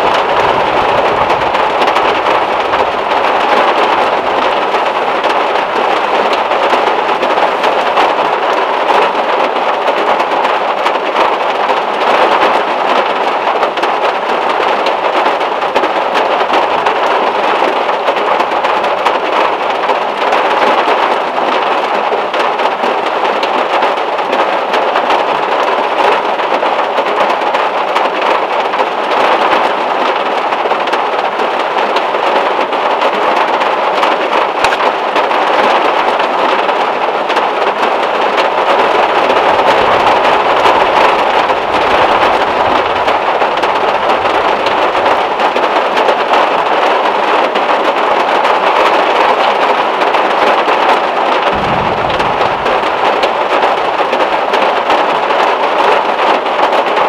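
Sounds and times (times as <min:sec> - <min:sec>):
heavy rain on metal roof: 0:00.0 - 0:57.0
short low thump: 0:51.5 - 0:53.7
low rumble: 0:51.5 - 0:54.4.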